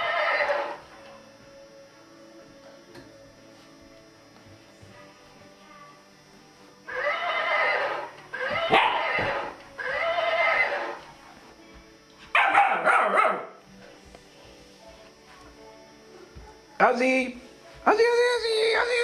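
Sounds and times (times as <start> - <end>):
recorded toy horse neigh: 0.0 - 0.8, 6.8 - 11.0.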